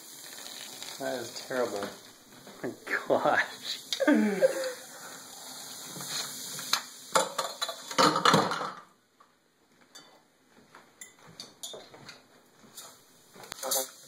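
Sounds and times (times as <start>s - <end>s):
fizzing foam: 0.0s - 8.0s, 13.6s - 14.0s
glass and metal clinks: 9.9s - 10.2s, 11.0s - 11.9s.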